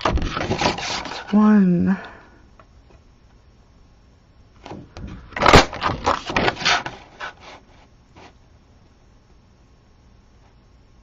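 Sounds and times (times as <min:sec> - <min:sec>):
paper rustling: 0:00.0 - 0:01.4, 0:04.7 - 0:08.4.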